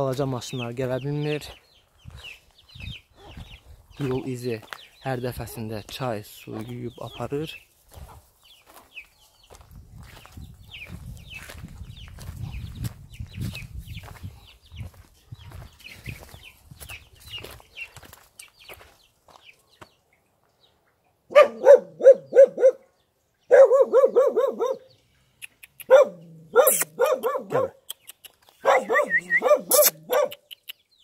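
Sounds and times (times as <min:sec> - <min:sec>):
dog barking: 0:21.3 - 0:22.9, 0:23.5 - 0:24.9, 0:25.8 - 0:27.8, 0:28.6 - 0:30.5.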